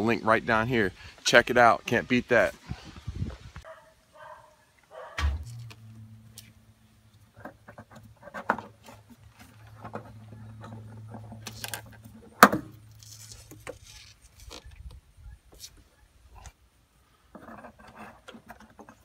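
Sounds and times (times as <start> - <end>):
steady low hum: 5.2 - 13.4.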